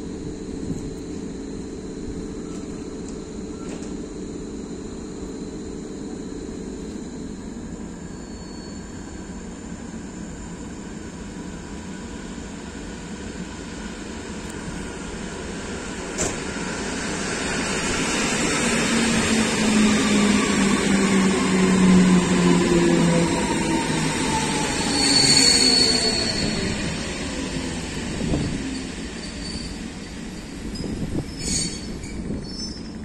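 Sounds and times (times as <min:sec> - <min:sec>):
train drive whine: 0:00.0 - 0:33.0
train rumble: 0:09.3 - 0:33.0.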